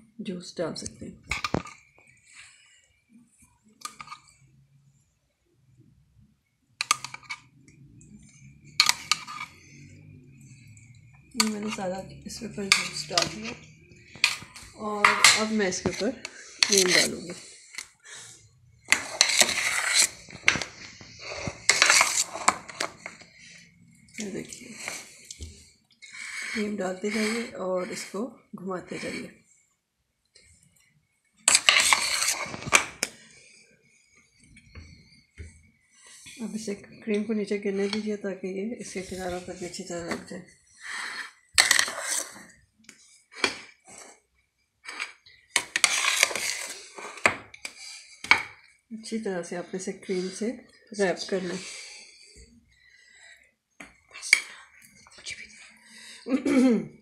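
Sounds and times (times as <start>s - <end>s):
utensil scraping a dish: 8.2s - 28.2s, 28.8s - 29.4s, 31.5s - 33.3s, 38.8s - 42.5s, 44.8s - 48.6s.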